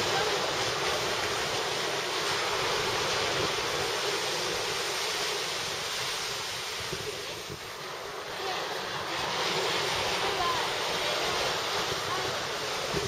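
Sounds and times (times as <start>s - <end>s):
surf breaking on sandy beach: 0.0s - 13.0s
wind rumbling on microphone: 0.0s - 13.0s.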